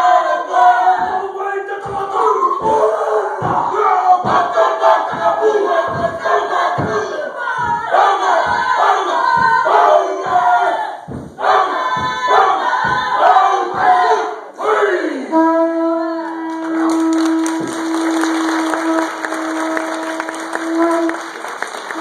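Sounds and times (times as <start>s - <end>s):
performers shouting a chant: 0.0s - 22.0s
audience applauding: 16.5s - 22.0s.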